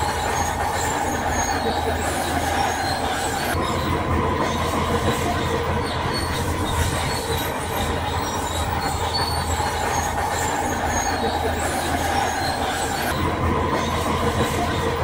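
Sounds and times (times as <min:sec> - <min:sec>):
metallic clatter of tracks: 0:00.0 - 0:15.0
thin high squeal: 0:05.8 - 0:13.2.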